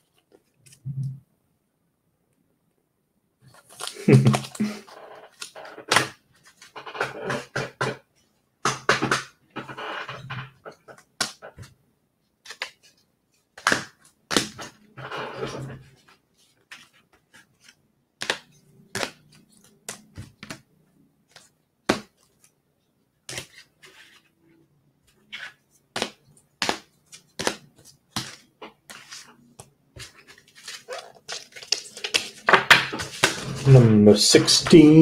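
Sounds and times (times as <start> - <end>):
trading cards being handled: 3.5 - 7.6, 12.4 - 14.8, 25.1 - 35.0
plastic wrapper crinkling: 30.1 - 33.8.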